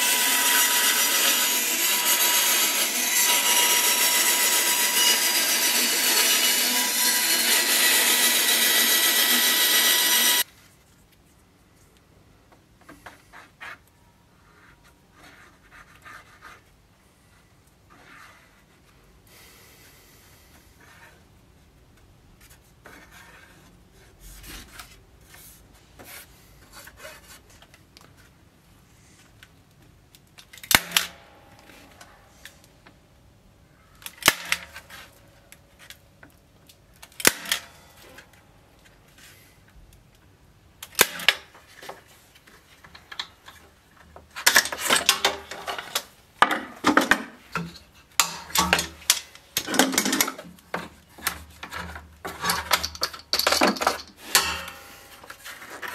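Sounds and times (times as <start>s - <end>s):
tools and wood clattering: 41.0s - 55.9s.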